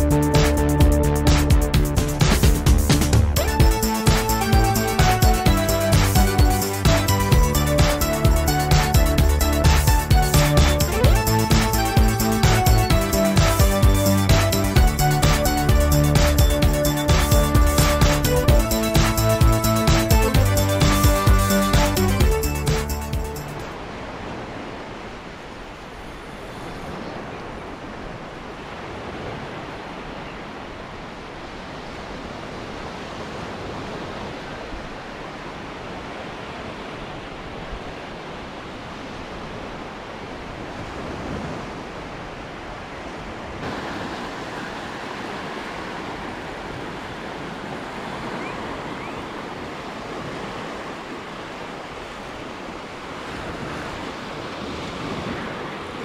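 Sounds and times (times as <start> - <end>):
surf breaking on sandy beach: 23.6 - 56.0.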